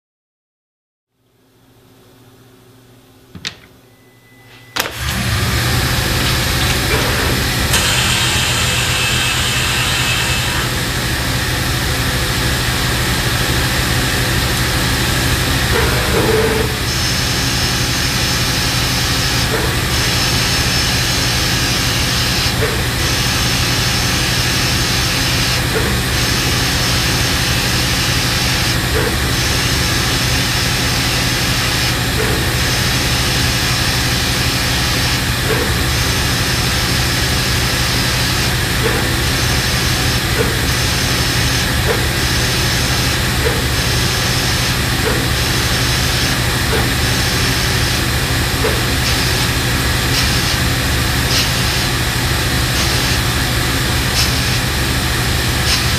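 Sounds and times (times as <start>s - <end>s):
lathe spindle hum: 4.9s - 55.9s
coolant spraying hiss: 6.2s - 11.3s, 39.2s - 53.4s, 55.6s - 55.9s.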